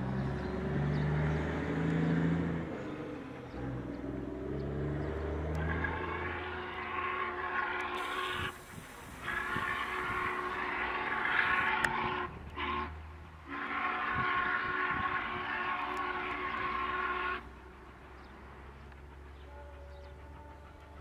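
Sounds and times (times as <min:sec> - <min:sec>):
steam locomotive whistle blasts: 0:05.6 - 0:17.6.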